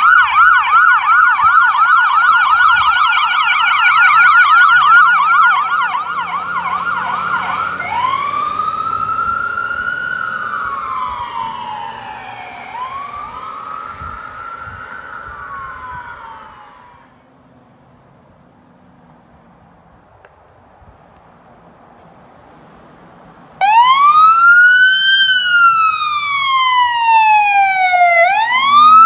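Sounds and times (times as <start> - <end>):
ambulance siren: 0.0 - 17.3, 23.6 - 29.0.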